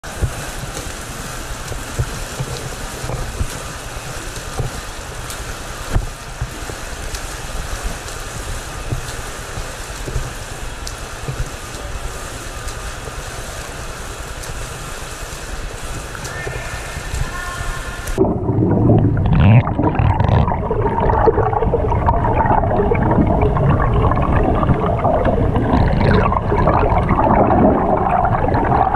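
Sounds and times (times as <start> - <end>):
water splashing from swimming: 0.0 - 28.9
steady low rumble: 18.2 - 28.9.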